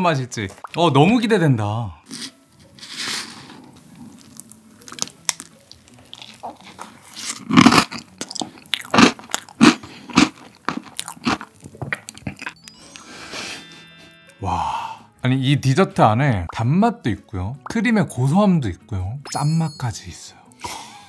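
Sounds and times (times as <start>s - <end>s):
crunchy chewing: 2.1s - 12.6s.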